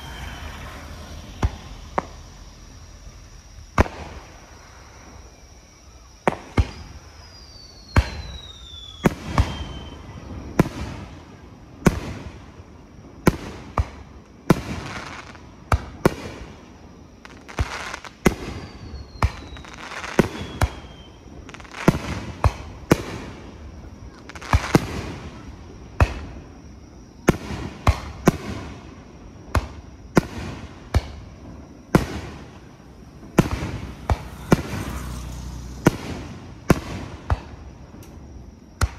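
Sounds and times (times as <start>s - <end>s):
firework shells booming: 0.0s - 2.8s, 3.7s - 4.5s, 27.2s - 38.9s
falling firework whistle: 0.0s - 12.4s, 13.2s - 26.6s, 27.2s - 38.9s.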